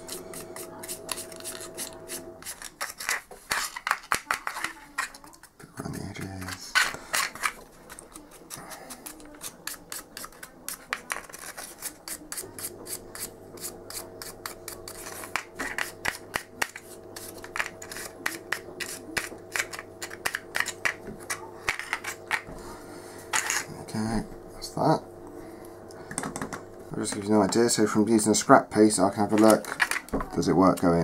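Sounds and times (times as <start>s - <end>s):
paintbrush scratching on ridged plastic: 0.0s - 22.3s
low steady hum: 12.5s - 30.5s.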